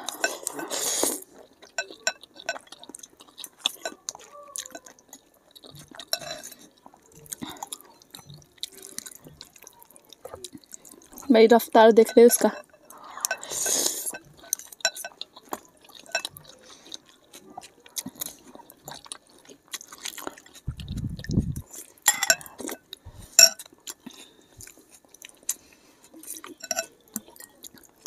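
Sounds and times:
noodles slurped and chewed: 0:00.0 - 0:11.4, 0:12.2 - 0:28.0
cutlery clicking on glass bowls: 0:05.8 - 0:06.6, 0:15.9 - 0:16.4, 0:22.1 - 0:22.8, 0:23.4 - 0:23.6, 0:26.6 - 0:27.5.

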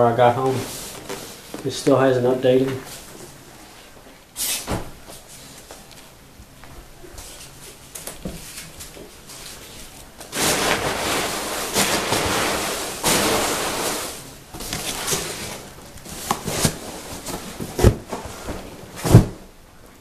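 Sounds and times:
foam packing peanuts rustling: 0:08.5 - 0:19.5.

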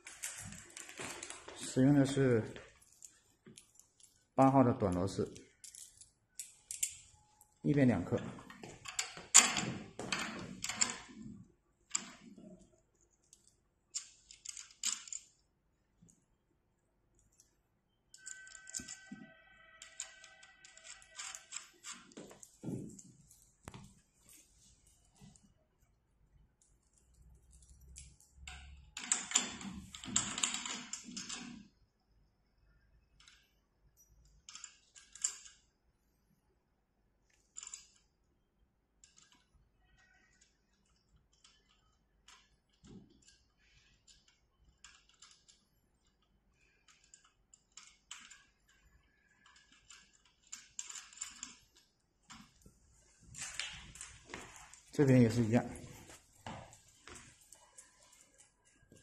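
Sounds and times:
metal hardware clicking and rattling: 0:00.0 - 0:07.5, 0:08.2 - 0:12.6, 0:13.2 - 0:15.4, 0:18.1 - 0:19.2, 0:19.8 - 0:24.5, 0:26.6 - 0:31.7, 0:33.2 - 0:35.7, 0:41.2 - 0:46.2, 0:46.8 - 0:52.7.

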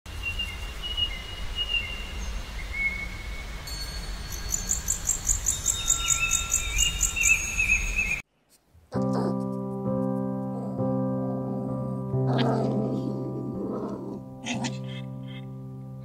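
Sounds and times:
birds whistling and chirping: 0:00.2 - 0:08.2
rhythmic insect chirping: 0:03.6 - 0:07.9.

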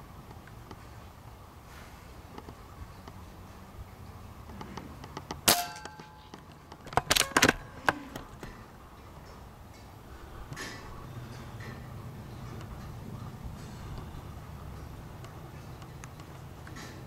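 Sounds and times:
air gun shot with metallic ring: 0:05.5 - 0:06.2.

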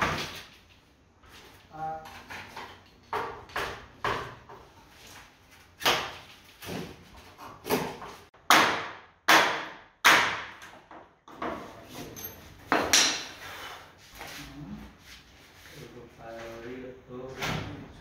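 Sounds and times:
hammer striking door frame: 0:07.6 - 0:11.6.

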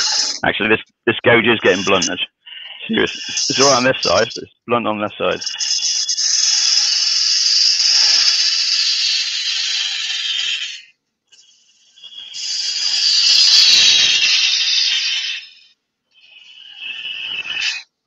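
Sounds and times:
person speaking: 0:00.0 - 0:05.6
lathe gouge cutting wood: 0:03.1 - 0:04.2.

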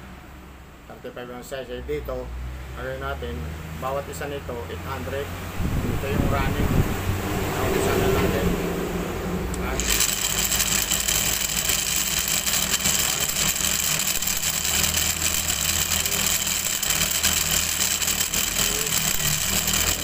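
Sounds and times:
electric motor whirring: 0:09.5 - 0:20.0.

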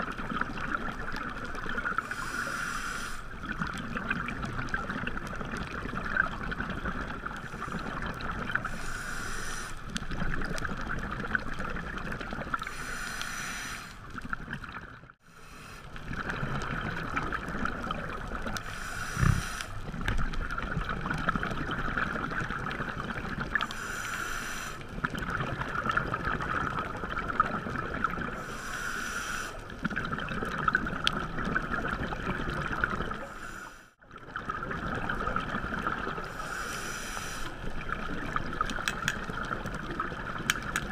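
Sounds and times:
scuba regulator bubbles: 0:00.0 - 0:40.9
underwater crackling hiss: 0:00.4 - 0:10.6, 0:12.5 - 0:14.3, 0:17.6 - 0:20.2, 0:23.2 - 0:25.3, 0:28.2 - 0:30.0, 0:32.9 - 0:33.9, 0:35.9 - 0:40.9.

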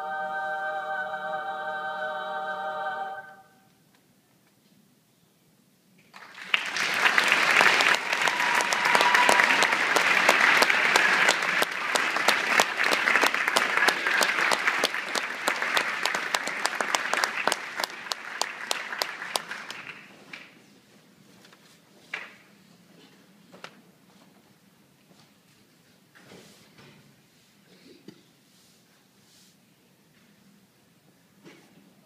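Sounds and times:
audience applauding: 0:06.1 - 0:20.5.

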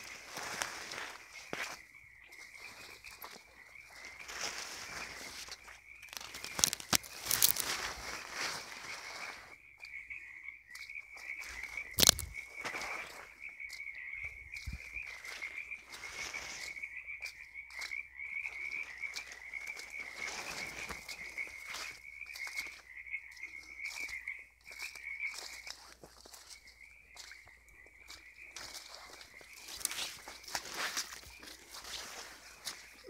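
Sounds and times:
frogs calling: 0:00.0 - 0:33.0
sharp crack: 0:12.0 - 0:12.3.

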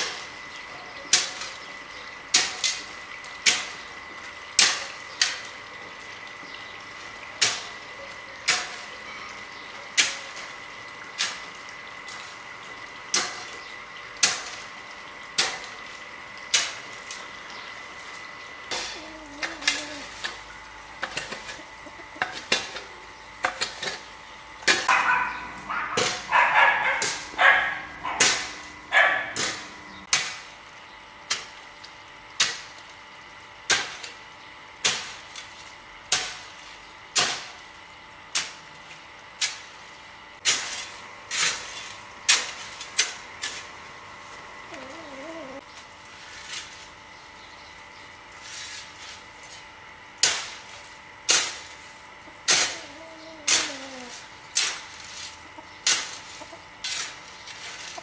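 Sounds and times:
faint warbling call: 0:44.7 - 0:45.6.

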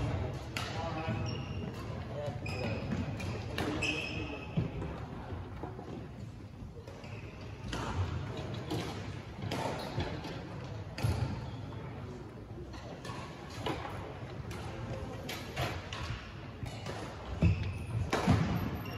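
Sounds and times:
racket hitting ball: 0:15.3 - 0:18.6.

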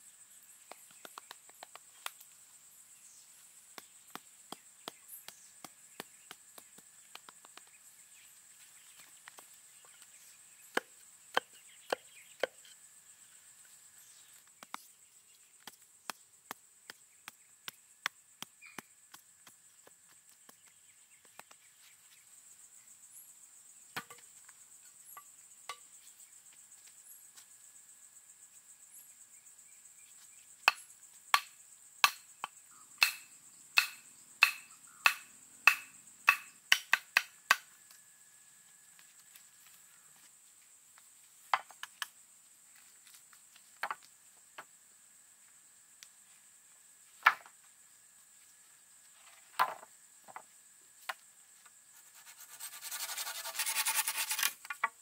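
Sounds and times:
high insect buzz: 0:00.0 - 0:55.0
hand tool striking wood: 0:10.7 - 0:12.7, 0:30.7 - 0:32.2, 0:33.0 - 0:33.2, 0:33.8 - 0:37.6.

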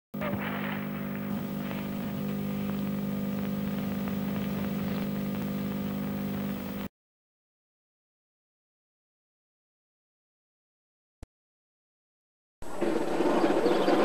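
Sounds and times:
electronic hum of low tones: 0:00.2 - 0:06.9
static hiss and crackle: 0:00.2 - 0:06.9.

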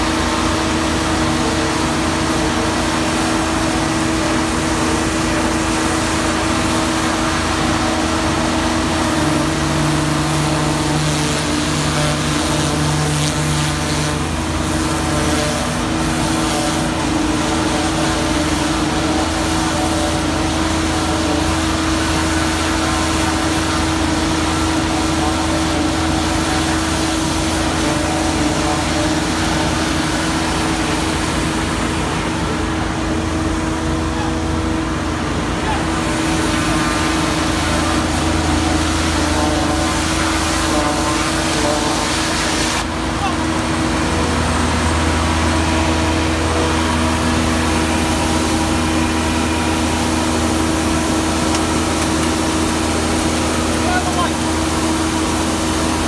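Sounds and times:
engine and blower drone: 0:00.0 - 0:56.0.

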